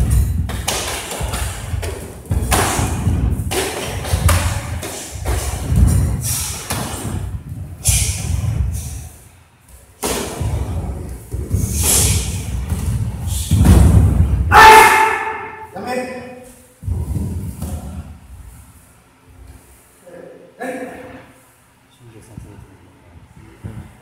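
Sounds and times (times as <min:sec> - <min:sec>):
thuds and slaps of feet: 0:00.0 - 0:08.9, 0:10.0 - 0:14.5.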